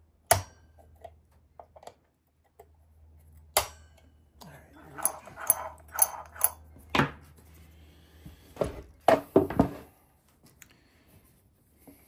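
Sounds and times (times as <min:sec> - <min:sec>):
metal tools clinking and knocking: 0:04.9 - 0:06.6.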